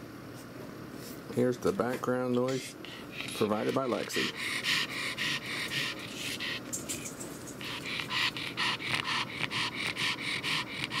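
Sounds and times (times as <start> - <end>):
dog panting fast: 2.6 - 11.0.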